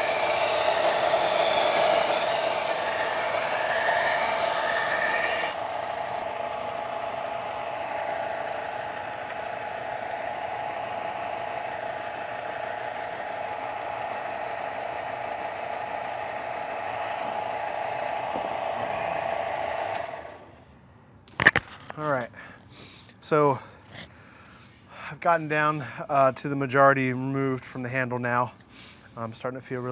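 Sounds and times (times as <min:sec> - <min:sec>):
belt sander humming: 0:00.0 - 0:20.6.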